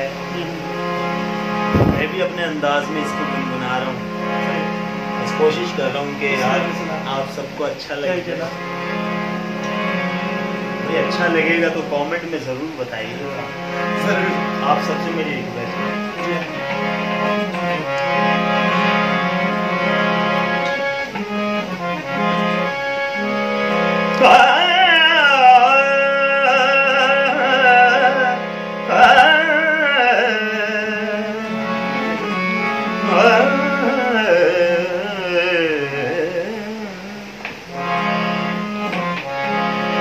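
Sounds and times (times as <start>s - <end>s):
harmonium chords and drone: 0.0s - 40.0s
man singing: 10.8s - 12.2s, 24.1s - 39.2s.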